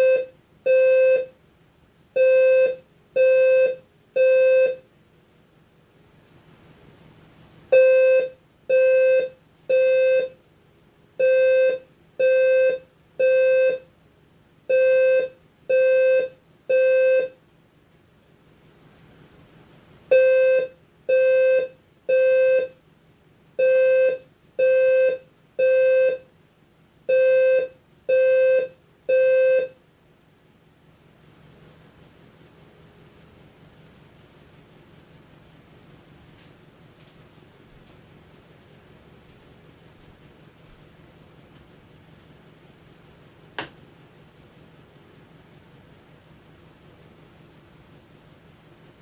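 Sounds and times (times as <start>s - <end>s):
fire alarm beeping: 0.0s - 1.4s, 2.2s - 4.8s, 7.7s - 10.4s, 11.2s - 13.9s, 14.7s - 17.4s, 20.1s - 22.8s, 23.6s - 26.3s, 27.1s - 29.8s.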